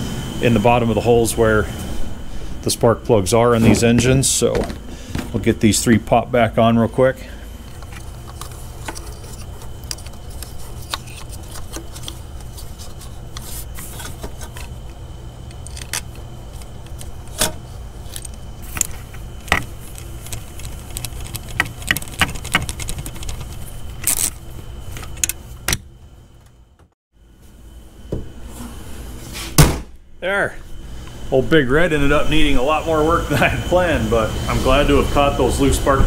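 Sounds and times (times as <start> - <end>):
low hum: 0.0 - 36.0
ignition coils clicking and scraping: 7.6 - 26.6.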